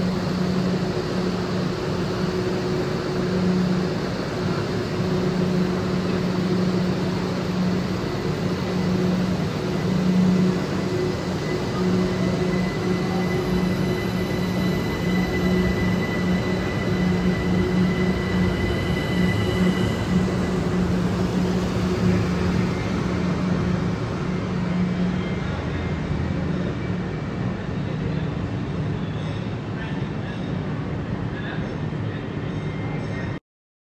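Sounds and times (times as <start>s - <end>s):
high electric whine: 0.0s - 26.9s
electric train hum: 0.0s - 33.4s.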